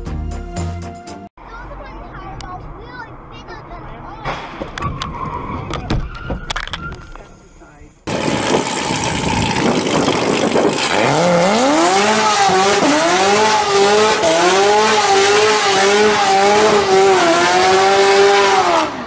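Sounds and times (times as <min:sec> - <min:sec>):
tyres screeching: 0:04.2 - 0:11.4
car engine revving: 0:08.1 - 0:19.0.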